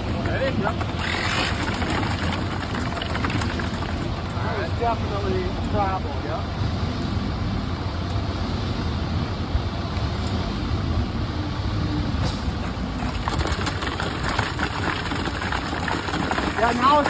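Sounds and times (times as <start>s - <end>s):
engine low rumble: 0.0s - 17.0s
shovel scraping wet concrete: 1.0s - 2.7s.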